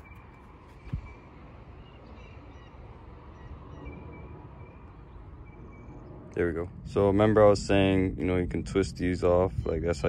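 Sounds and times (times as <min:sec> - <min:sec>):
distant birds chirping: 0:00.0 - 0:06.6.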